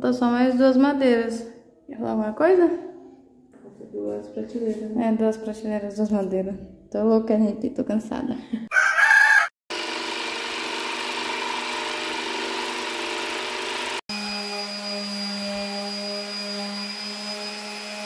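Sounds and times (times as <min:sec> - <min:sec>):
electric jigsaw cutting board: 0:09.7 - 0:18.0
power tool humming: 0:09.7 - 0:18.0.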